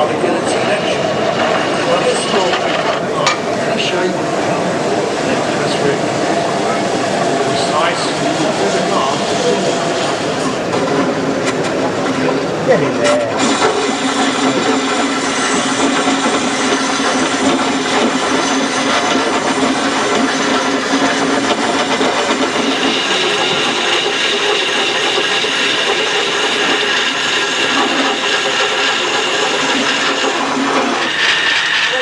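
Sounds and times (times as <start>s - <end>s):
lathe tool cutting wood hissing: 13.4s - 32.0s.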